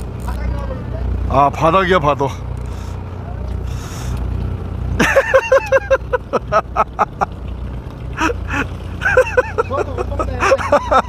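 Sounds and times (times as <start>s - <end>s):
boat engine humming: 0.0s - 11.0s
person laughing: 5.0s - 7.3s, 8.2s - 11.0s.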